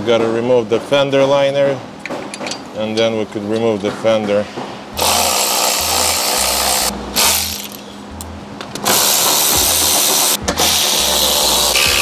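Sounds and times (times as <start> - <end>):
power driver running: 5.0 - 7.8, 8.8 - 12.0
background music: 5.0 - 12.0.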